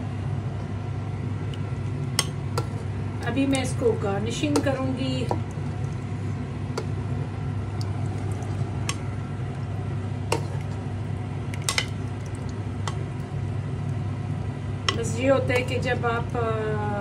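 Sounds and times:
steady low hum: 0:00.0 - 0:17.0
liquid sloshing and pouring: 0:07.6 - 0:14.0.

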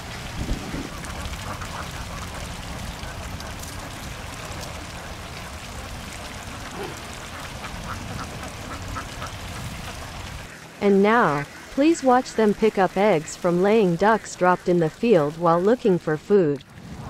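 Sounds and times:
ducks quacking: 0:06.4 - 0:14.8.

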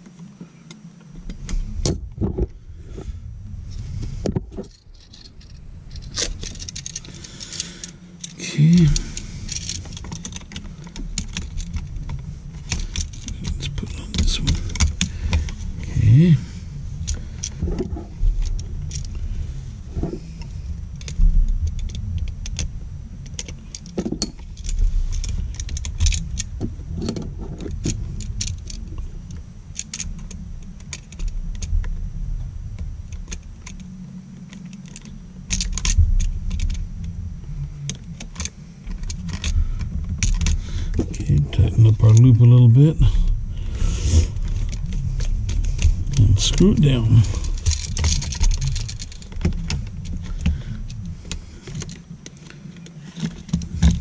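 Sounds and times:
low rumble of handling noise: 0:00.0 - 0:54.0
small clicks: 0:04.3 - 0:16.0, 0:20.0 - 0:32.0, 0:43.2 - 0:54.0.

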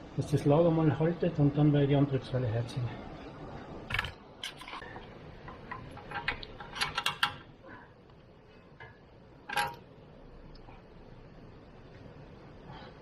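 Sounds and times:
metallic clicks of bolts and tools: 0:05.5 - 0:07.5, 0:08.8 - 0:09.9.

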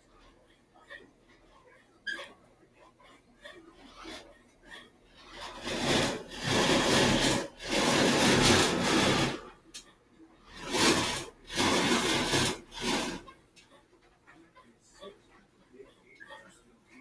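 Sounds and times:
paper rubbing and scraping: 0:00.0 - 0:09.6, 0:10.4 - 0:13.8.

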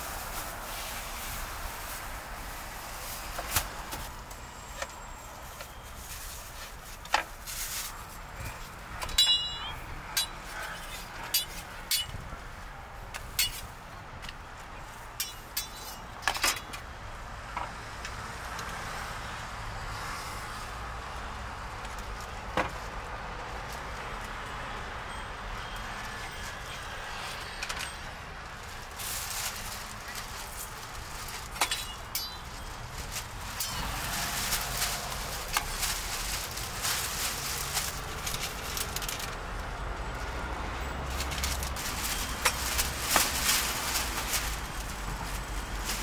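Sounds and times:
outdoor street noise: 0:00.0 - 0:46.0
passing traffic hum: 0:00.0 - 0:46.0
ringing metal clink: 0:09.1 - 0:10.4, 0:31.6 - 0:32.5.

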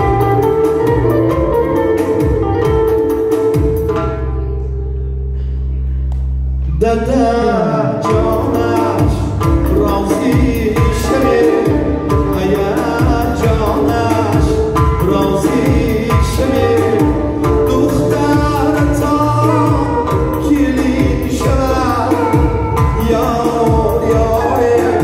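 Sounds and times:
frame drum beat: 0:00.0 - 0:04.1, 0:08.1 - 0:25.0
live band music: 0:00.0 - 0:25.0
man singing into a microphone: 0:06.6 - 0:25.0.

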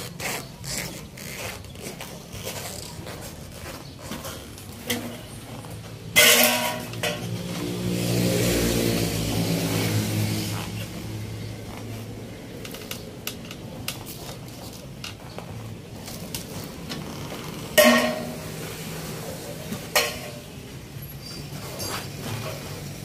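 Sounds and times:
loud ringing metal clanks: 0:06.2 - 0:07.4, 0:17.8 - 0:18.5.

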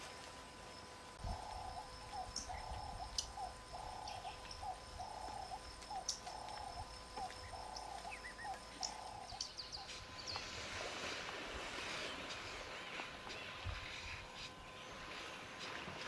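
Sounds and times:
low animal call: 0:01.2 - 0:10.0.

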